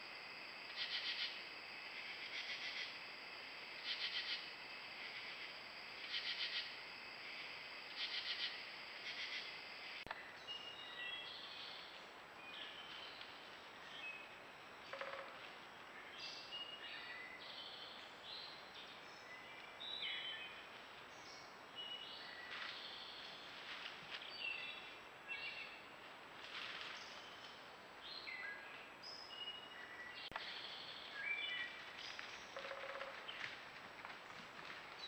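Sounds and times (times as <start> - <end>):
background hiss: 0.0 - 35.0
songbirds chirping: 15.7 - 26.0, 26.8 - 33.6.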